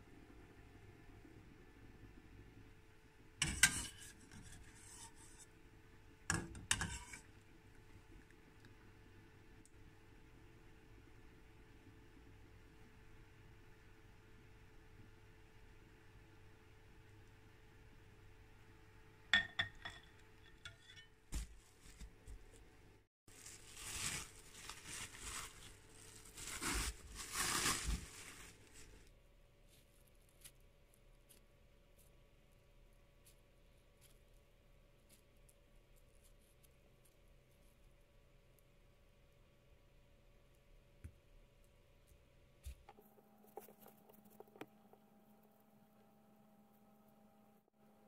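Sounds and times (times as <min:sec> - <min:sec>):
utensil scraping a metal pot: 0:03.4 - 0:05.5, 0:06.3 - 0:07.3
cling film crinkling: 0:23.3 - 0:29.0.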